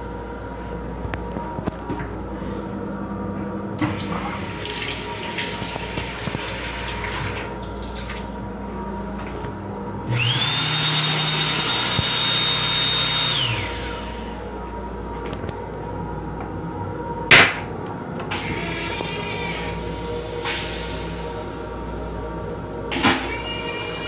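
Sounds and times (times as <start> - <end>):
faucet water running into sink: 3.8 - 8.4
hand dryer blowing: 10.0 - 14.4.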